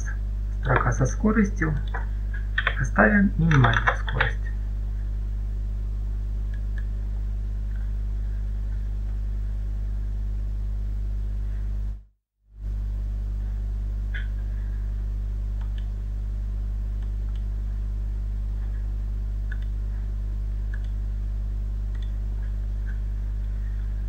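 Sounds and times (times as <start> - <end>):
low electrical hum: 0.0 - 24.0
computer mouse clicks: 1.8 - 2.8, 15.6 - 15.9, 19.5 - 19.7, 20.7 - 21.0, 21.9 - 22.2.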